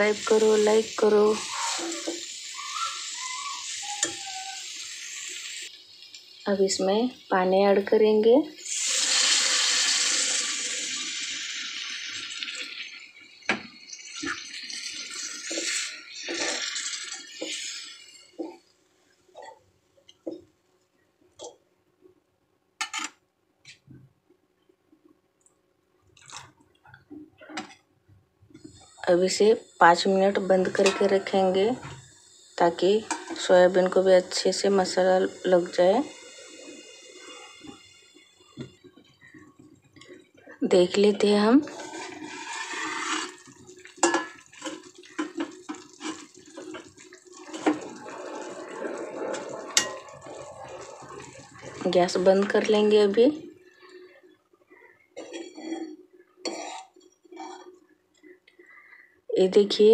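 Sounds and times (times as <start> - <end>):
lid hiss: 8.6 - 12.2
water pouring and splashing: 41.6 - 52.8
curry bubbling and popping: 41.7 - 52.8.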